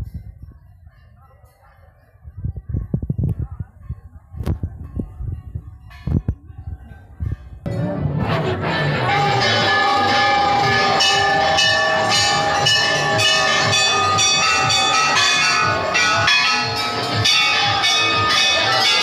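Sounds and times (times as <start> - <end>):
temple bells clanging: 7.7 - 19.0.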